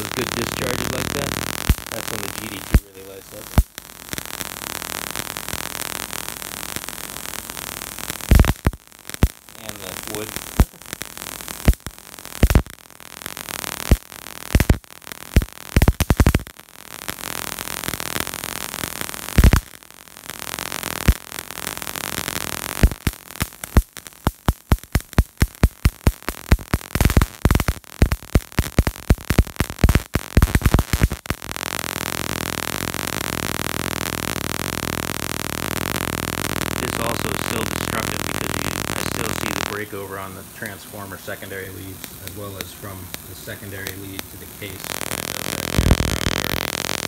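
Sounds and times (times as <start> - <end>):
electric sparks cracking: 0.0 - 47.0
electrical buzzing hiss: 0.0 - 47.0.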